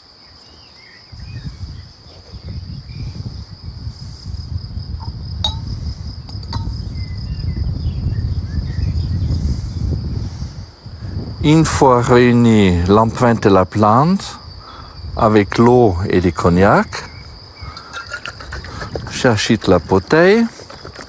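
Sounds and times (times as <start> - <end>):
crickets chirring: 0.0 - 21.0
glass clinks: 5.4 - 5.7, 6.3 - 6.8, 17.7 - 19.0.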